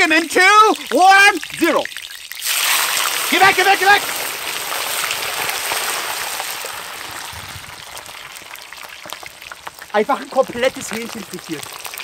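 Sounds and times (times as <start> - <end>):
oil sizzling and bubbling: 0.0 - 12.0.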